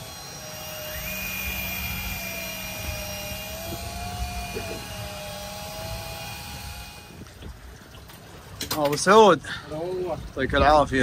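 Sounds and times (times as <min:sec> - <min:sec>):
fishing reel motor whining: 0:00.0 - 0:07.3
outboard engine droning: 0:00.0 - 0:11.0.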